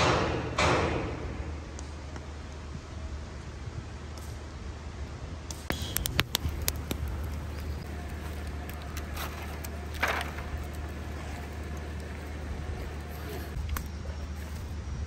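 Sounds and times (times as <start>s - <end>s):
low background rumble: 1.2s - 15.0s
sharp clicks and taps: 5.5s - 9.9s
hands in water in foil tray: 5.7s - 14.8s.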